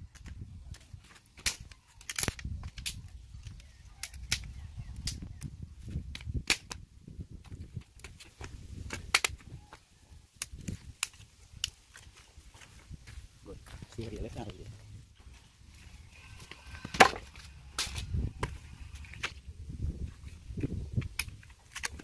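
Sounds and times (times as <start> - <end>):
sticks snapping: 1.1 - 6.8, 7.4 - 9.5, 10.3 - 12.1, 17.8 - 19.4, 21.0 - 22.0.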